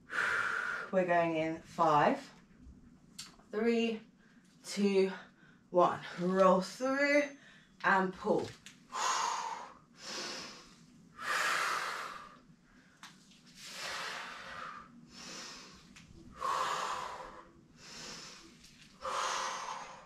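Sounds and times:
woman breathing hard: 8.9s - 13.0s, 13.6s - 20.0s.

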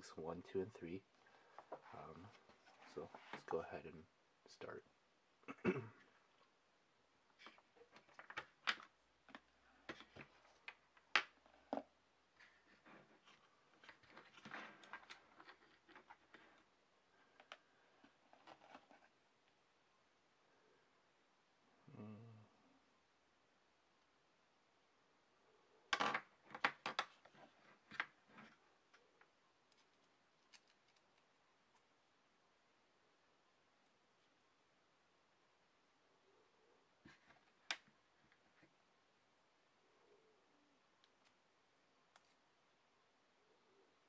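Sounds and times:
small parts clicking and tapping: 29.7s - 31.9s.

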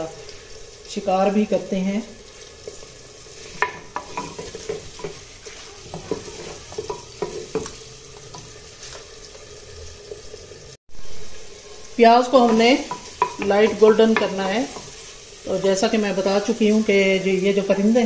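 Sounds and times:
onions sizzling in a pot: 0.0s - 18.0s
wooden spoon scraping a pot: 2.2s - 9.6s, 12.4s - 15.3s.

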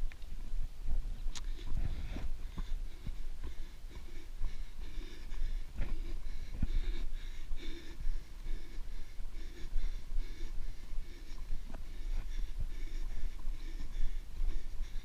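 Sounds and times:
hard rhythmic breathing: 0.9s - 15.0s.

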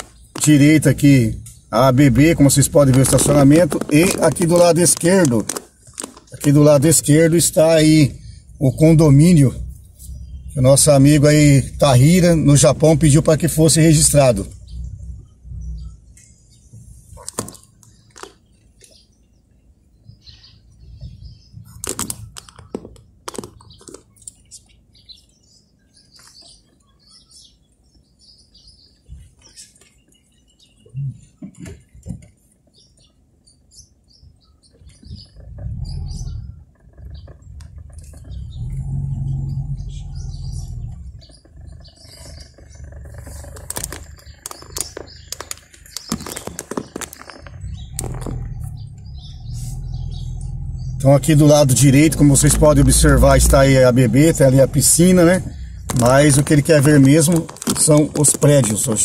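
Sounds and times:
birds chirping: 0.0s - 59.0s
low rumble: 8.1s - 17.1s, 35.3s - 45.3s, 47.4s - 57.7s
sharp clicks: 35.1s - 50.6s, 51.2s - 59.0s.

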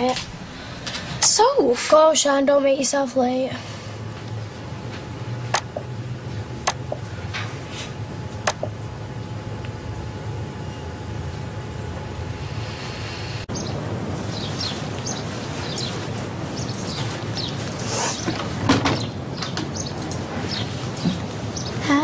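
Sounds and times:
low room hum: 0.0s - 22.0s
birds chirping: 8.2s - 22.0s.

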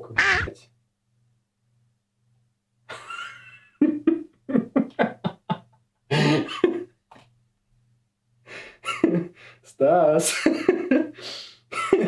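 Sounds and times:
man's rough frustrated vocal burst: 0.0s - 0.6s.

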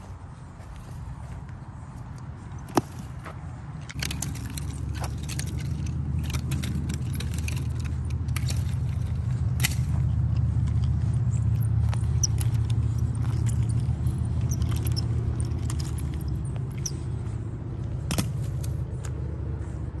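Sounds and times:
nunchaku clicking and rattling: 3.8s - 19.0s.

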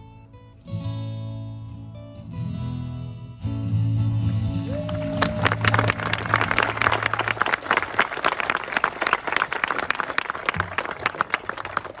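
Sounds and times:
crowd applauding: 4.4s - 12.0s.

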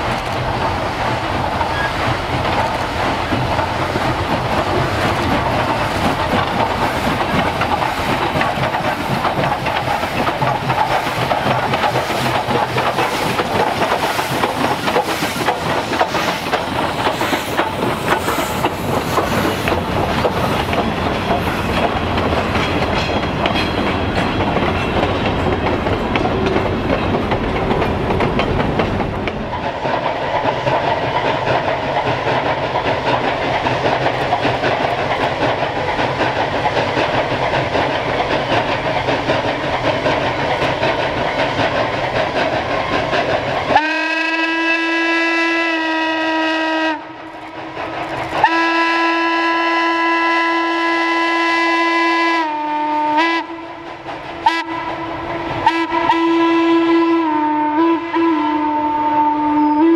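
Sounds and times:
wheels clacking over rail joints: 0.0s - 44.4s
steam locomotive exhaust beats: 0.0s - 59.9s.

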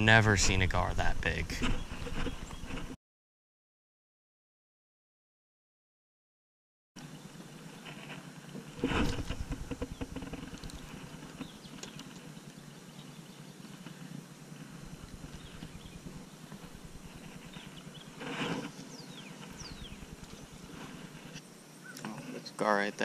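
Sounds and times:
hands brushing against camera: 7.9s - 12.2s, 14.6s - 21.4s.

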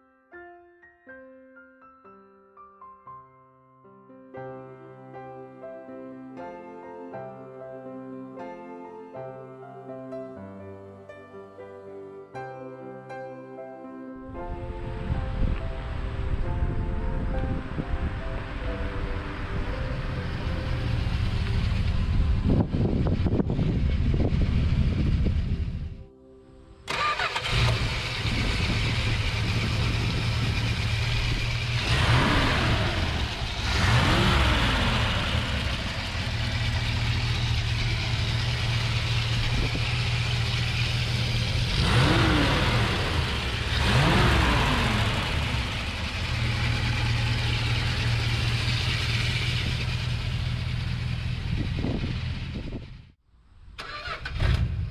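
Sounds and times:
car engine revving and idling: 18.1s - 25.9s, 26.9s - 53.2s.

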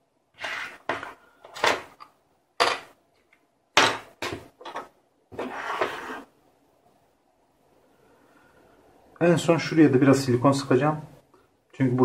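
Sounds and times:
parts scraping and knocking on desk: 0.4s - 3.0s, 3.8s - 6.3s.

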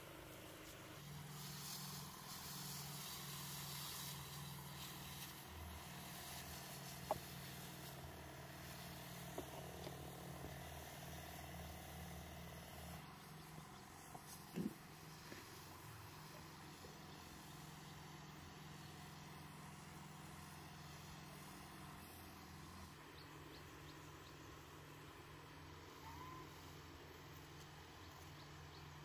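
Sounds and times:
motorized sprayer humming: 0.0s - 29.0s
spray hissing: 0.4s - 22.9s.

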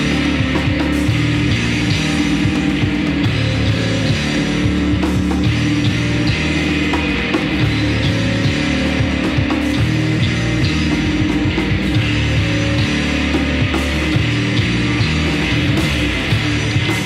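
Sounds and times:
heavy rock band playing: 0.0s - 17.0s.

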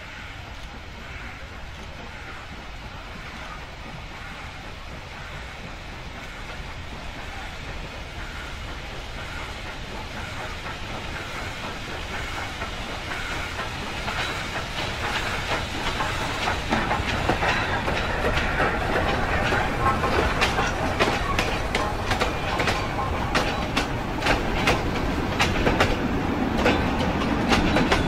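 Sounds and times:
steam locomotive hauling train: 0.0s - 28.0s
wagons clattering: 13.5s - 28.0s.

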